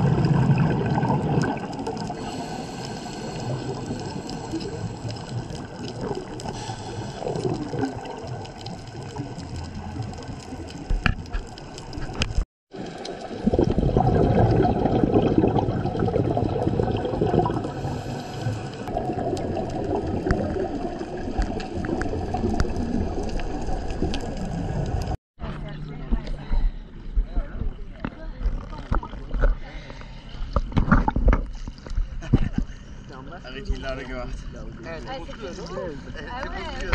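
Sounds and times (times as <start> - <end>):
underwater regulator bubbles rushing: 0.0 - 25.2.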